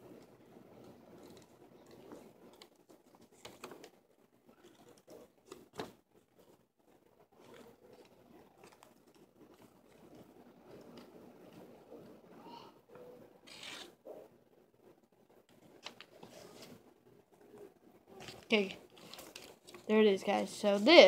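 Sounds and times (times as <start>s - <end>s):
paper rustling: 0.8s - 11.6s, 18.2s - 19.9s.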